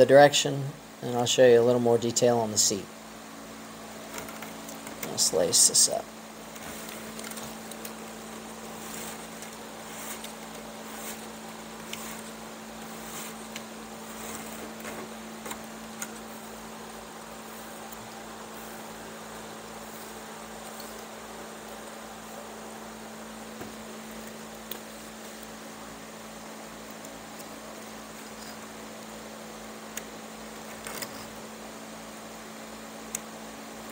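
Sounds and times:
low electrical hum with hiss: 0.0 - 33.9
chair cane rustling being woven: 3.9 - 22.6, 23.4 - 31.4.

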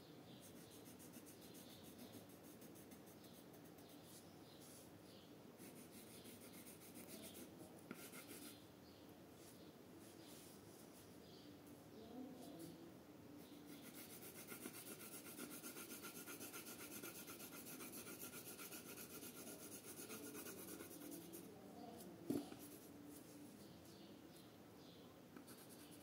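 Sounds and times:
pencil scratching on paper: 0.4 - 4.8, 5.6 - 8.6, 13.7 - 21.5, 25.4 - 26.0.

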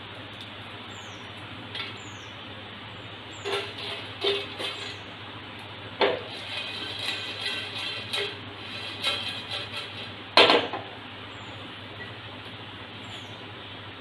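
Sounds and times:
spices rattling in a frying pan: 0.4 - 10.8.

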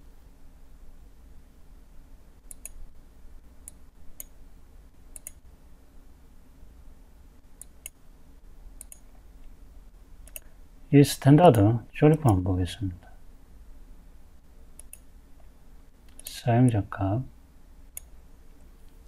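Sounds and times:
faint low hum: 0.0 - 19.0
computer mouse button clicking: 2.5 - 2.8, 14.8 - 15.1.

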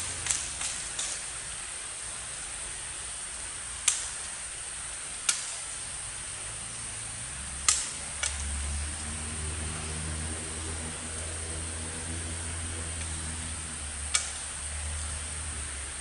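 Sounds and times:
sharp short clicks: 14.1 - 14.5.

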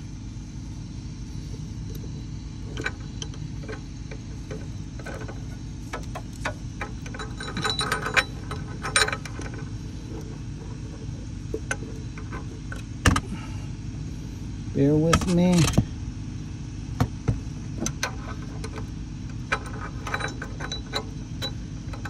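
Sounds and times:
steady low hum: 0.0 - 22.0
wrench clicking and clinking: 2.8 - 9.6, 17.8 - 22.0.

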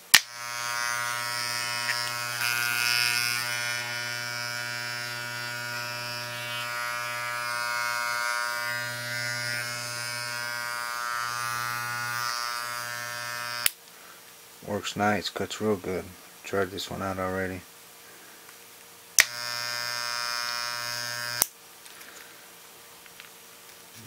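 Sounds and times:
electric hair clipper buzzing: 0.0 - 13.8, 19.2 - 21.5.

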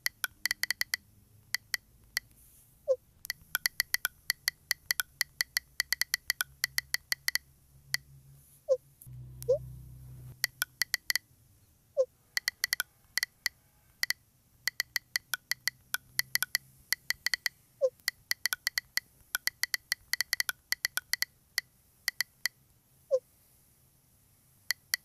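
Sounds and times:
phone keyboard key clicks: 0.0 - 2.4, 3.2 - 8.0, 10.4 - 11.2, 12.4 - 22.6, 24.7 - 25.0.

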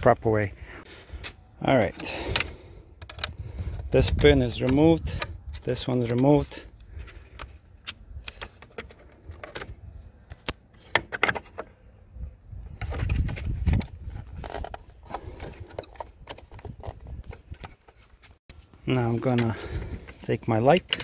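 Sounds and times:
plastic parts clicking: 1.9 - 11.7, 13.8 - 18.0, 19.3 - 21.0.

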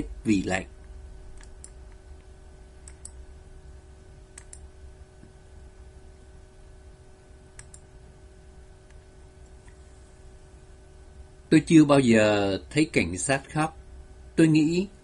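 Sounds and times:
faint steady hum: 0.0 - 15.0
light clicks: 4.4 - 4.6, 7.6 - 7.8.

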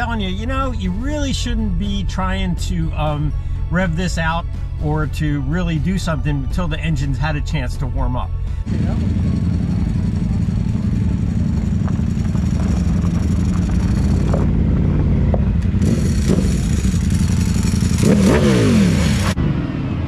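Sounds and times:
motorcycle and car engines rumbling: 0.0 - 20.0
sport bike engine revving: 8.7 - 20.0.

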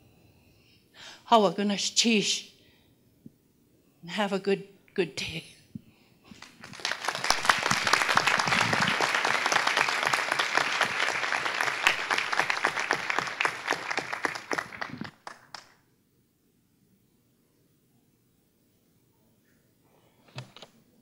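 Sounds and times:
audience applauding: 6.3 - 15.8.

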